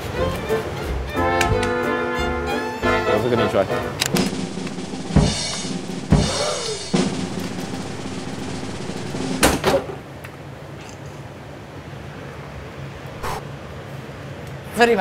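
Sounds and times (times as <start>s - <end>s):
bass drum and snare strikes: 4.1s - 9.6s
crashing drum hit with ringing: 4.2s - 9.6s.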